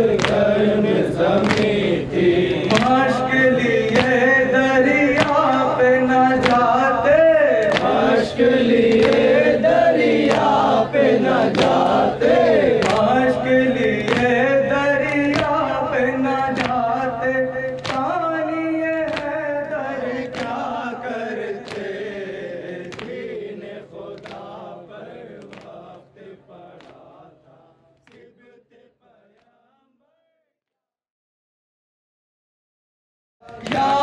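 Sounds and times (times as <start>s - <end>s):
man singing a lament: 0.0s - 25.3s, 33.4s - 34.0s
rhythmic chest-beating: 0.0s - 29.8s, 33.4s - 34.0s
men chanting in chorus: 0.0s - 30.5s, 33.4s - 34.0s.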